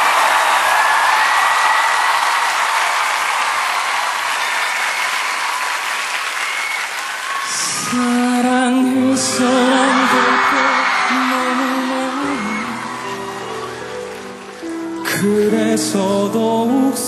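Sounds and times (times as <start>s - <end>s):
audience applause: 0.0s - 16.7s
music: 7.6s - 17.0s.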